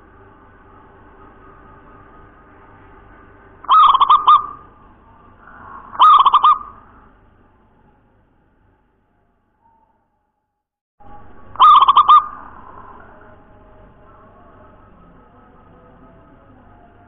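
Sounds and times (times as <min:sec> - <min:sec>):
faint steady hum: 0:00.0 - 0:10.2, 0:11.0 - 0:17.0
dove cooing: 0:03.6 - 0:07.1, 0:11.2 - 0:13.4.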